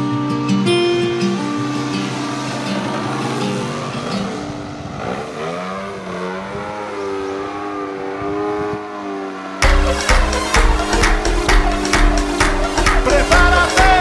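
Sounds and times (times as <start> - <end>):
music: 0.0 - 2.3, 9.6 - 14.0.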